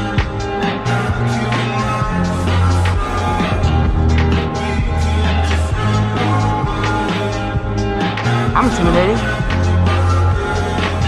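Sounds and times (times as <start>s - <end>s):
steady drum beat: 2.8s - 9.7s
held bass notes: 8.4s - 9.4s.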